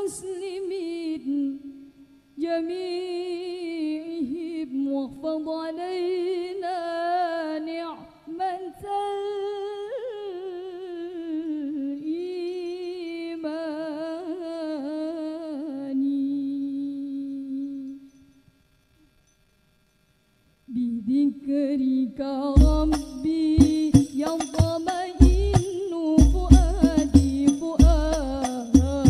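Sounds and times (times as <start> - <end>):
woman singing unaccompanied: 0.0 - 18.1, 20.7 - 29.0.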